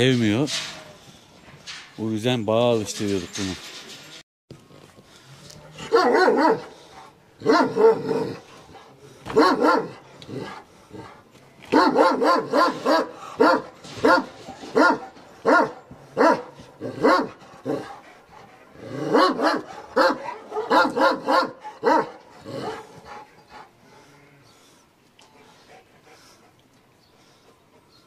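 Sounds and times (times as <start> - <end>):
dog barking: 5.8 - 6.7, 7.4 - 8.3, 9.3 - 10.0, 11.7 - 17.9, 19.1 - 22.2.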